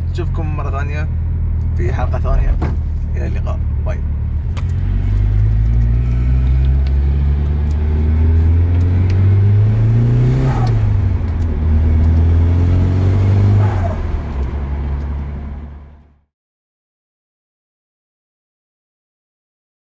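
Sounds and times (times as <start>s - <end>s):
car engine accelerating: 0.0s - 16.3s.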